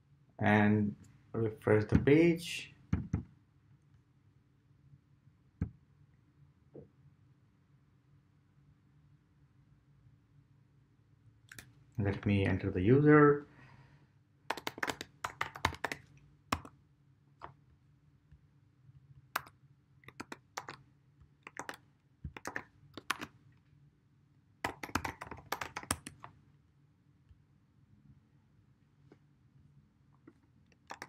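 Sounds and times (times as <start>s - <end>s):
keyboard typing clicks: 14.5s - 16.7s, 19.4s - 20.8s, 21.4s - 23.3s, 24.6s - 26.3s, 30.7s - 31.0s.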